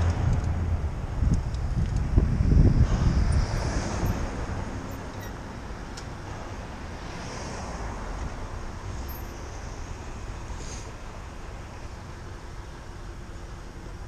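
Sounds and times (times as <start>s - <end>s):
wind rushing over microphone: 0.0s - 8.9s
traffic noise: 0.0s - 14.0s.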